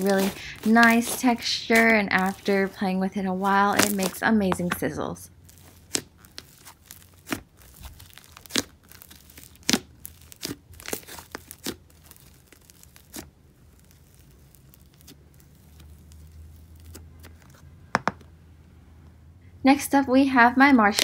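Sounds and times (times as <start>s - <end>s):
slime stretched and squeezed: 0.0s - 4.3s, 5.3s - 17.6s
slime popping and crackling: 0.0s - 17.4s, 20.8s - 21.0s.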